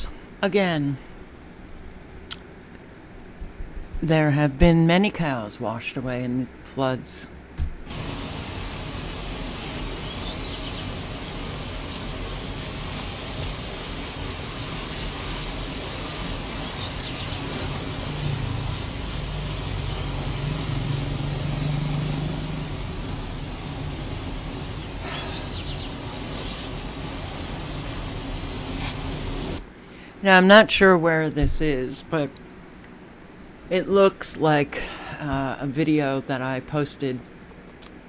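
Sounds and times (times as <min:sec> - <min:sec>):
floodwater rushing: 0:07.9 - 0:29.6
low drone: 0:07.9 - 0:29.6.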